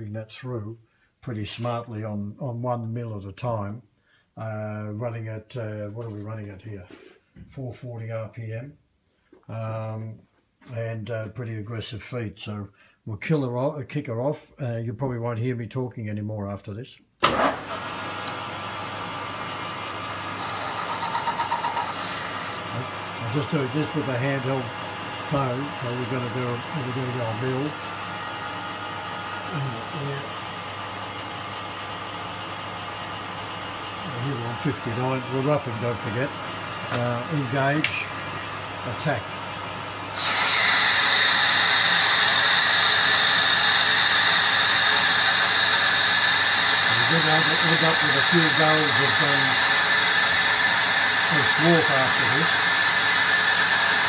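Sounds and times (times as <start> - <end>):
lathe machining steel: 20.4 - 27.8, 40.2 - 54.0.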